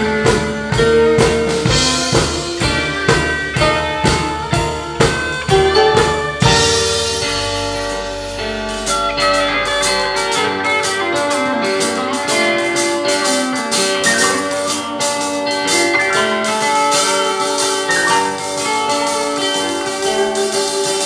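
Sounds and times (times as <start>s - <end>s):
live rock band playing: 0.0s - 21.0s.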